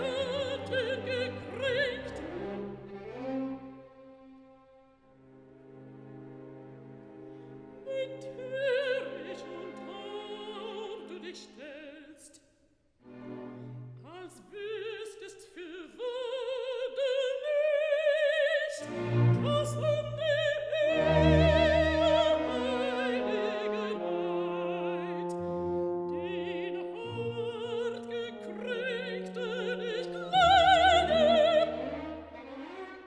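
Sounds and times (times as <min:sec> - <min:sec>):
operatic female voice singing: 0:00.0 - 0:02.3, 0:07.8 - 0:12.4, 0:14.0 - 0:32.4
orchestra playing: 0:20.8 - 0:33.0.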